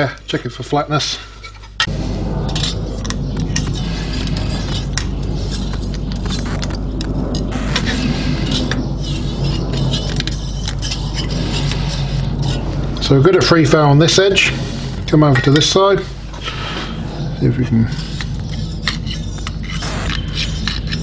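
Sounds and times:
metal tools clinking and scraping: 0:01.1 - 0:01.9, 0:15.0 - 0:16.8
loud mechanical hum: 0:01.4 - 0:21.0.

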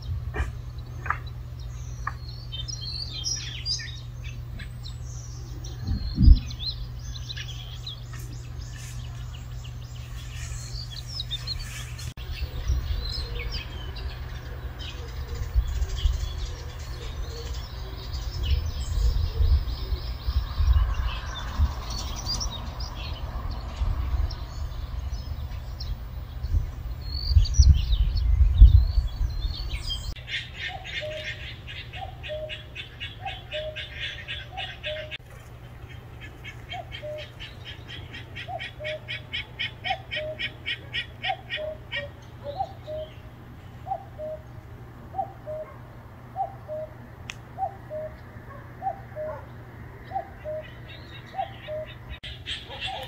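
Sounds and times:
small birds chirping: 0:00.0 - 0:53.0
low rumble on microphone: 0:04.0 - 0:30.2.

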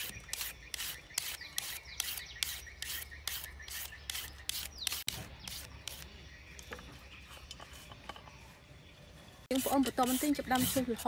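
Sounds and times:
peeler scraping carrot: 0:09.5 - 0:11.0.

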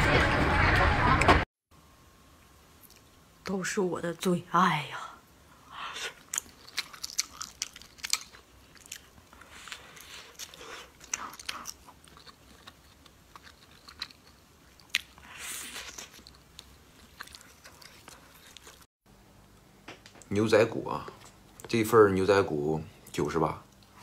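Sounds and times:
person chewing food: 0:05.8 - 0:18.9.

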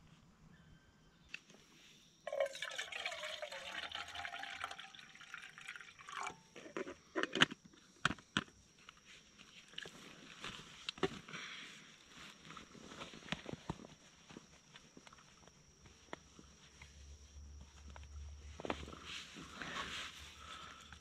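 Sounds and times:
water pouring into a pot: 0:02.3 - 0:06.6.

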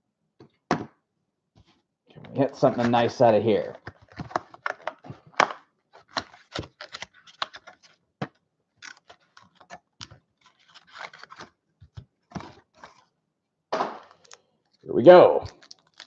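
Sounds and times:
card packs tapping and crinkling: 0:02.3 - 0:13.1, 0:15.2 - 0:16.0.

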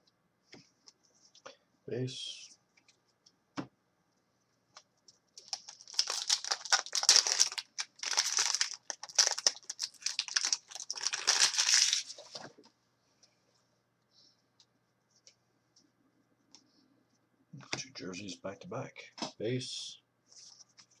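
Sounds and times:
foil wrapper crinkling: 0:05.4 - 0:12.4.

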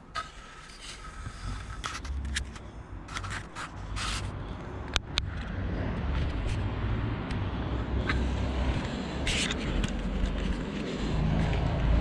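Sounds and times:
short scrapes: 0:03.1 - 0:04.4.

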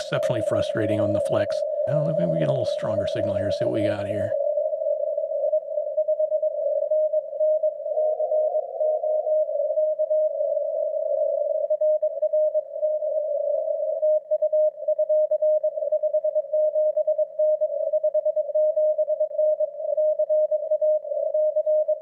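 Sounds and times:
radio band hiss: 0:00.0 - 0:04.4
morse code tone: 0:01.9 - 0:04.3.

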